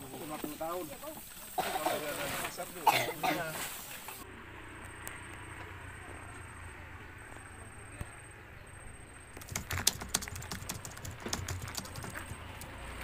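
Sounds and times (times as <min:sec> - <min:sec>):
faint steady hiss: 0:00.0 - 0:06.0
rapid sharp clicks: 0:09.4 - 0:12.8.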